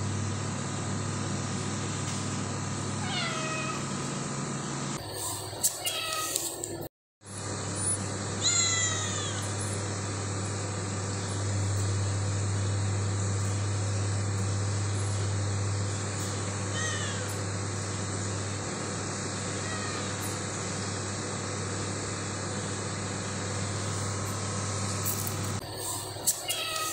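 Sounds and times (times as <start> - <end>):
steady low hum: 0.0 - 26.9
cat meowing: 3.0 - 3.8, 8.4 - 9.5, 26.4 - 26.9.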